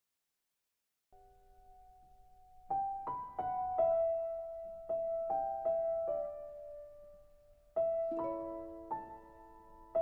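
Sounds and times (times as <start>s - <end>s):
slow piano melody: 1.2s - 10.0s.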